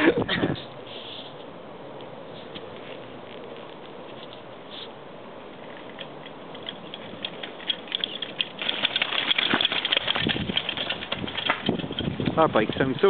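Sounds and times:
mountain bike rattling over rocks: 5.6s - 13.0s.

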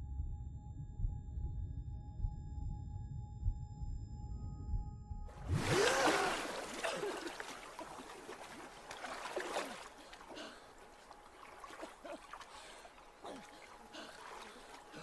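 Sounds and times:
water lapping and splashing: 5.4s - 15.0s
woman breathing heavily: 10.0s - 10.9s, 12.0s - 15.0s.

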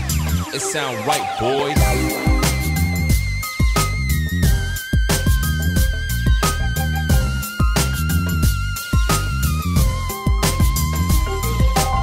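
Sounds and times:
electronic music with heavy bass: 0.0s - 12.0s
gliding synth sounds: 0.3s - 3.2s.

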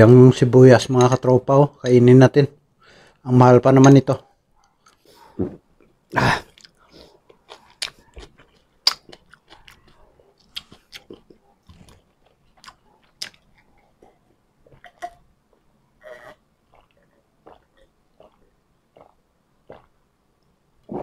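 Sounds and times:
drinking and swallowing water: 4.6s - 21.0s
close chewing mouth clicks: 6.5s - 15.2s, 16.0s - 19.9s.

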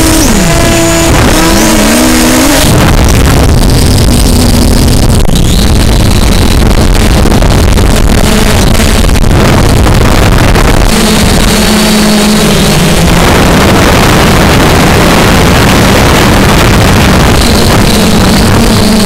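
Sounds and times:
drone motors humming: 0.0s - 19.0s
high motor whine: 0.0s - 19.0s
wind buffeting microphone: 0.0s - 19.0s.

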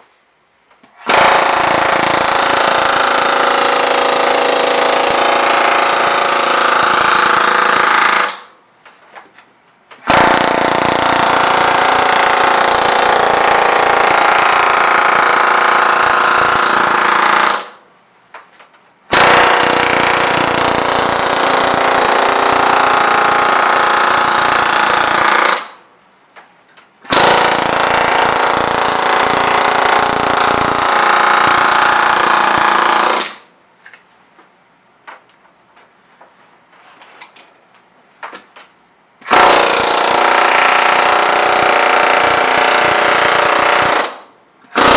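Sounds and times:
pneumatic air hammer hammering metal: 39.2s - 44.9s.

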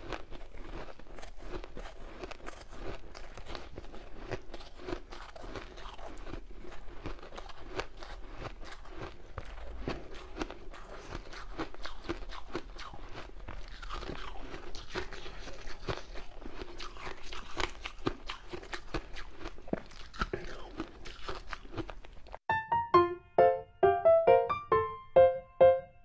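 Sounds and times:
shaved ice being chewed: 0.0s - 22.4s.

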